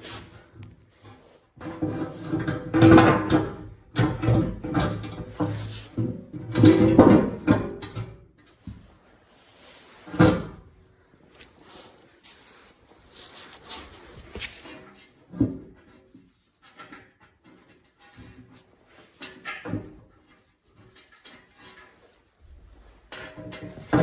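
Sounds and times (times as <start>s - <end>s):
metal plate banging and scraping: 1.5s - 8.5s, 10.0s - 10.8s, 14.6s - 24.0s.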